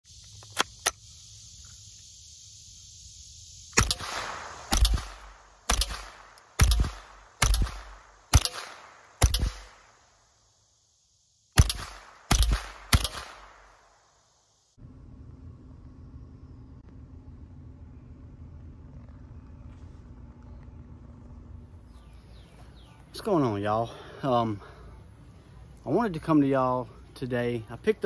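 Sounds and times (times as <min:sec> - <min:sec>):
rifle shots echoing: 0:03.8 - 0:10.1, 0:11.6 - 0:14.0.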